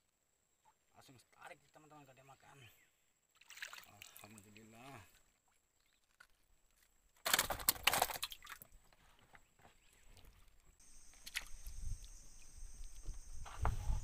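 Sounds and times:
insects buzzing: 0:10.2 - 0:14.0.

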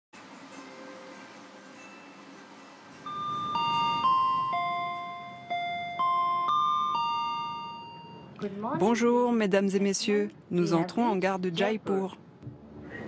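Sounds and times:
electronic chime melody: 0:03.0 - 0:08.4.

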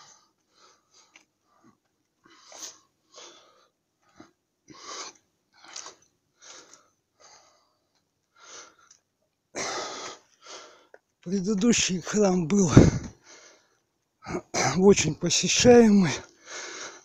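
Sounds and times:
man breathing hard: 0:00.0 - 0:05.8, 0:12.7 - 0:14.5, 0:16.2 - 0:17.0.

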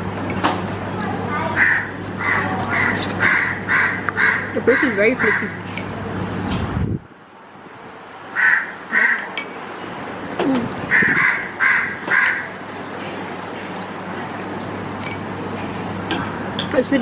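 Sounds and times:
bird calling: 0:01.6 - 0:05.6, 0:08.3 - 0:09.7, 0:10.9 - 0:12.6.

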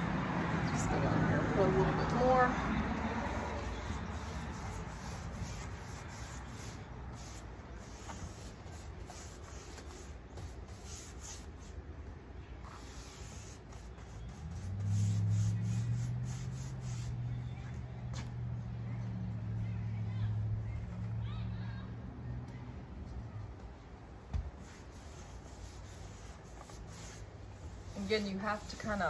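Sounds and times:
paintbrush swishing on wood: 0:01.6 - 0:11.8, 0:12.6 - 0:18.4, 0:24.5 - 0:29.0.

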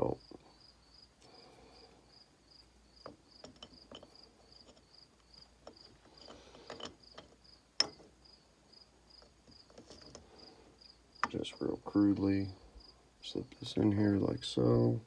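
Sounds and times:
cricket chirping: 0:00.0 - 0:13.5
engine parts clicking and knocking: 0:03.0 - 0:08.2.

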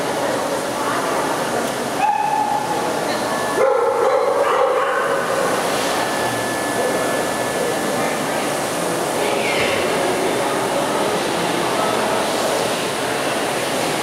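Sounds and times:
hall background noise: 0:00.0 - 0:14.0
dog short high call: 0:02.0 - 0:02.6.

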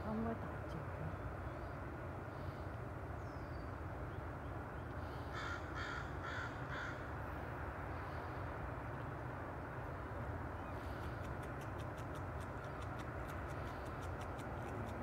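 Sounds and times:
bird calling: 0:03.2 - 0:07.1.

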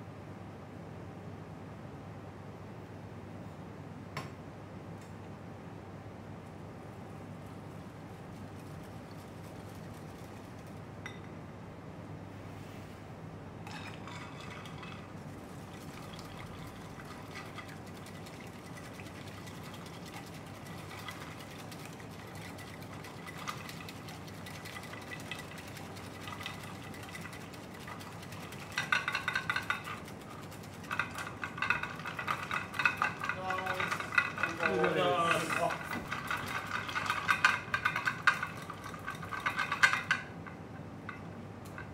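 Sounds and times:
whisk clicking on glass bowl: 0:13.7 - 0:40.3.

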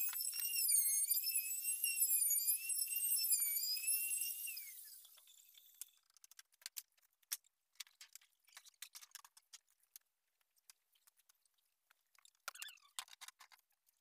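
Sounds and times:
high-pitched wavering tone: 0:00.0 - 0:05.8.

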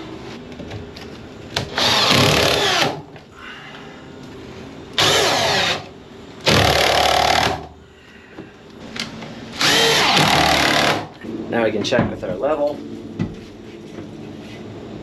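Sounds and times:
cordless drill driving screws: 0:01.7 - 0:03.0, 0:05.0 - 0:05.9, 0:09.6 - 0:11.0.

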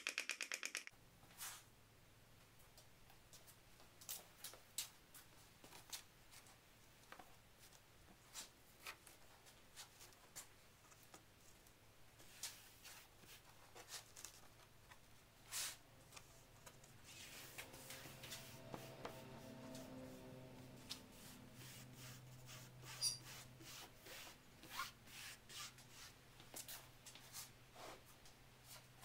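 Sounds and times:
low steady hum: 0:14.8 - 0:24.7.

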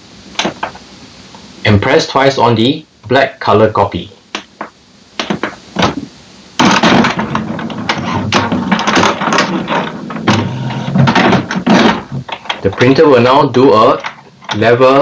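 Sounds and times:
printer mechanism whirring and clicking: 0:06.6 - 0:13.0.

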